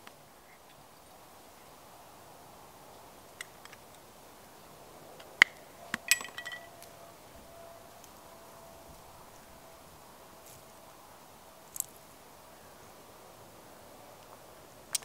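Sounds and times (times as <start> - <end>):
small hard objects clinking: 5.9 - 7.0.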